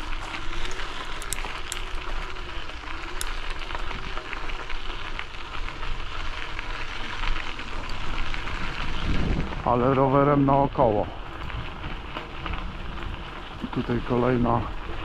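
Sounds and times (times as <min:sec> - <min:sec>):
crackling hiss: 0:00.0 - 0:15.0
small clicks: 0:00.1 - 0:02.0, 0:03.0 - 0:03.9
wind buffeting microphone: 0:07.8 - 0:15.0.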